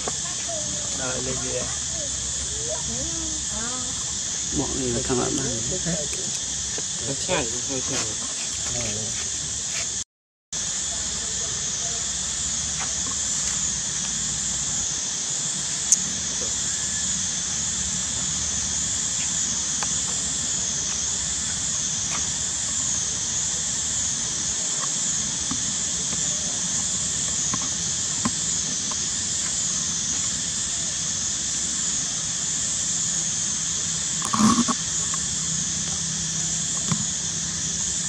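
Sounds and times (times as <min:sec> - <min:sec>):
high-pitched insect drone: 0:00.0 - 0:10.0, 0:10.6 - 0:38.0.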